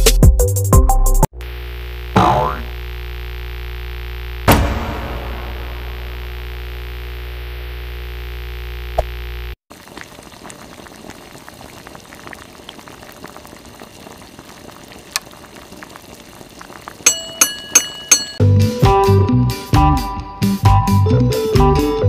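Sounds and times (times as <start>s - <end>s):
crackling fizzing hiss: 8.8s - 18.2s.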